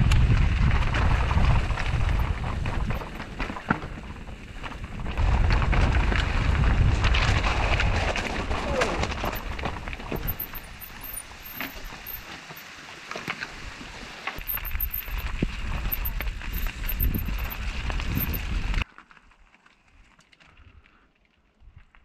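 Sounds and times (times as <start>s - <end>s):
wind buffeting microphone: 0.0s - 12.2s, 14.4s - 18.8s
bike tyres running over stones: 0.0s - 22.0s
bike rattling over rocks: 0.1s - 13.8s, 14.4s - 21.0s.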